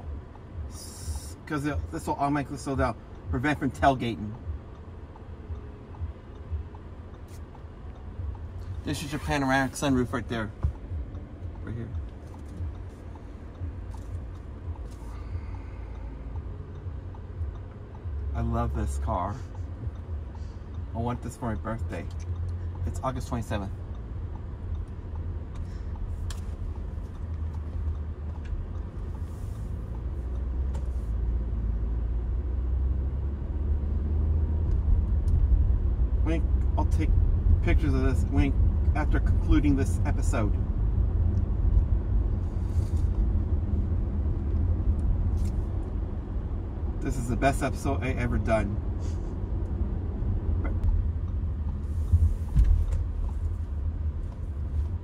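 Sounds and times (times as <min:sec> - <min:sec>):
engine and road rumble: 0:00.0 - 0:55.0
low thump: 0:52.1 - 0:53.1.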